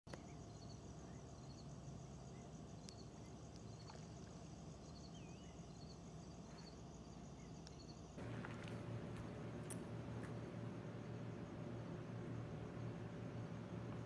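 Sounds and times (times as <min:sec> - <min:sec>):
insects chirping trill: 0:00.1 - 0:14.0
low steady rumble: 0:08.2 - 0:14.0.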